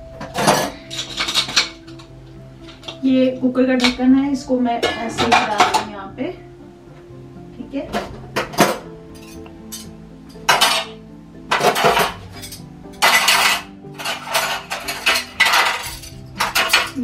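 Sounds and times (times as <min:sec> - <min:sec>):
dishes and utensils clattering: 0:00.0 - 0:03.0, 0:04.7 - 0:06.1, 0:07.9 - 0:17.0.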